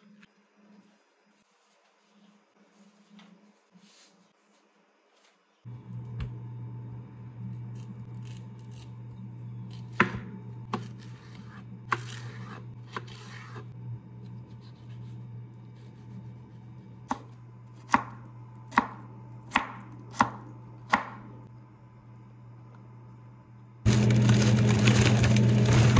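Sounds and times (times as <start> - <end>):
steady low hum: 5.6 - 25.9
knife scraping: 10.7 - 13.7.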